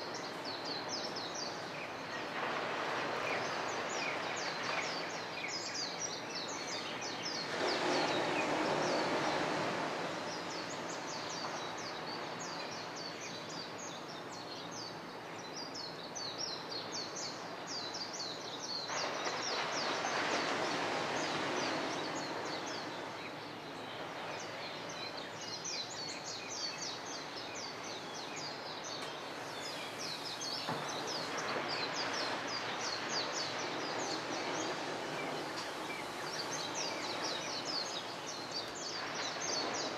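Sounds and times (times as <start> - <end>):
steady rushing noise: 0.0 - 13.9, 18.2 - 39.9
birds chirping: 17.9 - 39.9.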